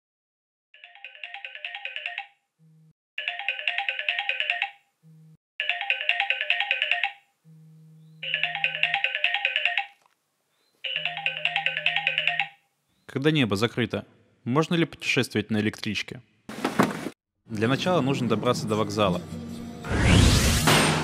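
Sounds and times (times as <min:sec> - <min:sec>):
phone alarm chiming melody: 0:00.8 - 0:10.0, 0:10.8 - 0:12.6.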